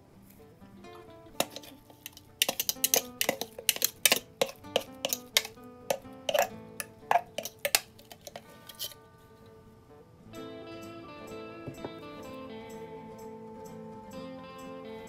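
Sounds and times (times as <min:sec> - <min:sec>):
soft background music: 0:00.0 - 0:15.0
plastic container clinking on glass bowl: 0:01.4 - 0:08.9.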